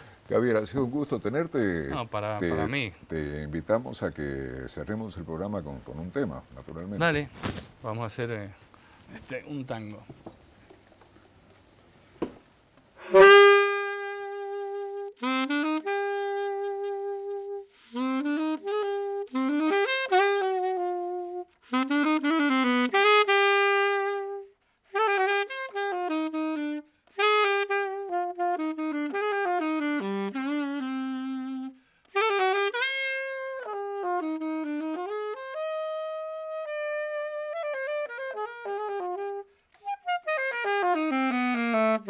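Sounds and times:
solo saxophone tango melody: 1.9 - 3.0, 13.0 - 42.0.

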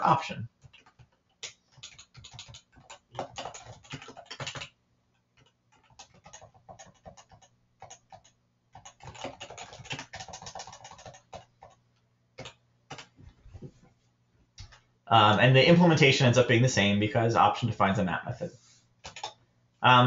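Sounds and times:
typing on a computer keyboard: 0.6 - 11.8, 12.4 - 13.2, 19.0 - 19.4.

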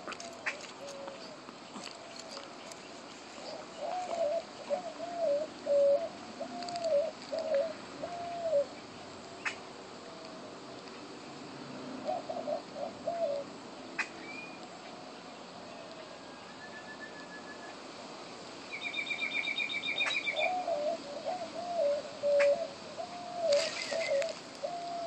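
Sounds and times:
low wavering bird call: 3.4 - 8.8, 16.0 - 17.8, 18.7 - 25.0.

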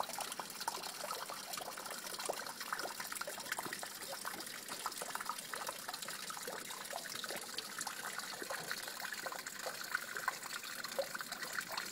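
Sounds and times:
water trickling and splashing: 0.0 - 11.9.

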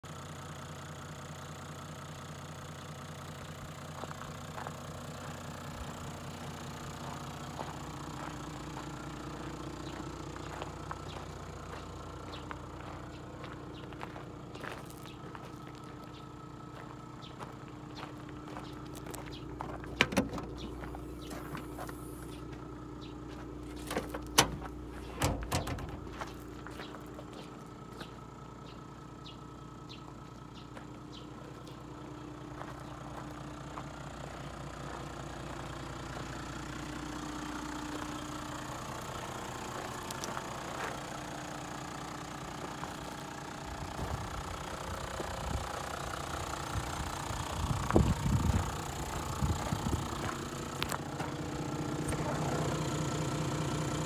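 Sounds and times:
diesel engine idling: 0.0 - 54.0
steady low hum: 7.5 - 33.4
tailgate dropping open clunks: 19.8 - 22.0, 23.7 - 26.3
tailgate latch clicks: 20.0 - 20.8, 23.9 - 26.1.

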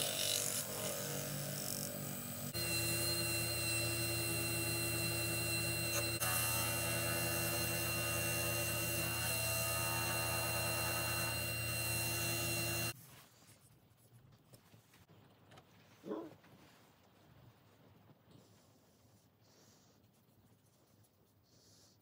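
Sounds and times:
wood lathe humming and whining: 0.0 - 13.0.

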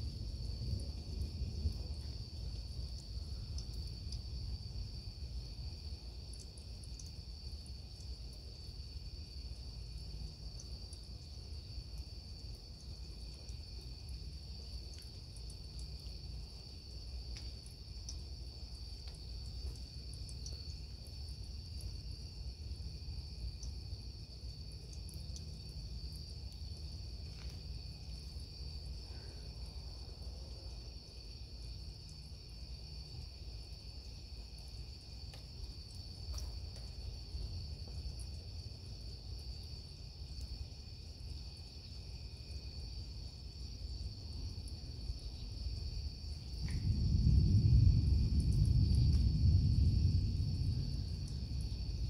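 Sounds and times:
thunder rumble: 0.0 - 5.5, 45.5 - 52.0
crickets trilling: 0.0 - 52.0
faint low rumble: 46.3 - 52.0.

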